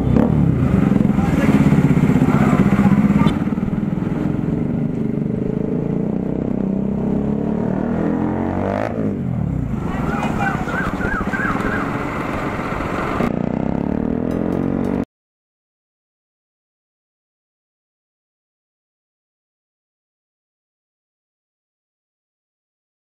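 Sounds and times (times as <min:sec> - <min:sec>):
vehicle passing: 0:00.0 - 0:15.0
motorcycle engine and exhaust: 0:00.0 - 0:15.1
warbling tone: 0:09.8 - 0:12.9.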